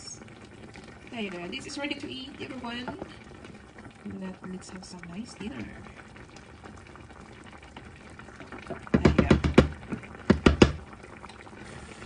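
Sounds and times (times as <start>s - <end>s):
wooden spoon tapping metal pan: 8.9s - 10.8s.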